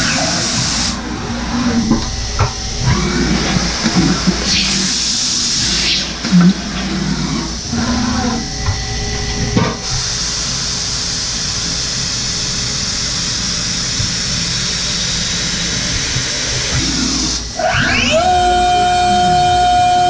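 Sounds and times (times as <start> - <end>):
cnc mill spindle tone: 0.0 - 20.0
loud spray hiss: 7.6 - 17.4.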